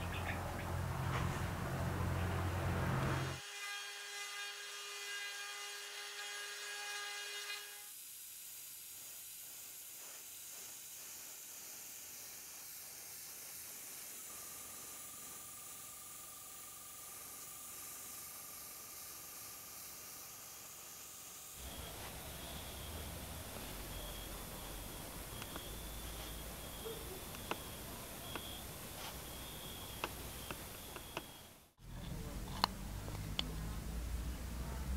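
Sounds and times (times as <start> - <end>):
spray paint hissing: 7.9 - 16.2, 17.0 - 31.4
power drill whining: 21.6 - 31.6
faint steady tone: 21.6 - 32.3.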